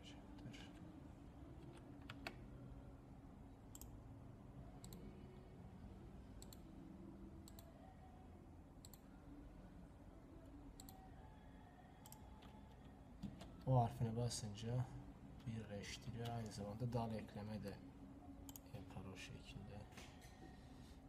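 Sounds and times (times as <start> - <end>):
low room hum: 0.0 - 21.0
computer mouse clicks: 3.7 - 4.0, 4.8 - 5.1, 6.4 - 6.6, 7.4 - 7.7, 8.8 - 9.0, 10.8 - 11.0, 12.0 - 12.6, 18.5 - 18.7.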